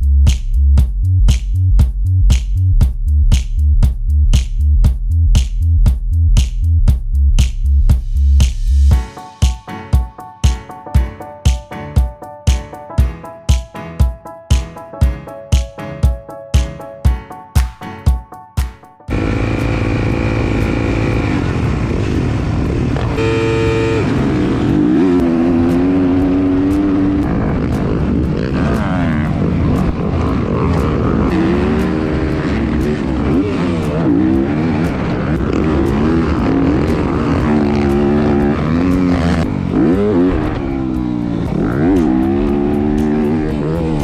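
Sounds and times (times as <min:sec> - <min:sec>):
motocross bike engine revving: 0:19.1 - 0:44.0.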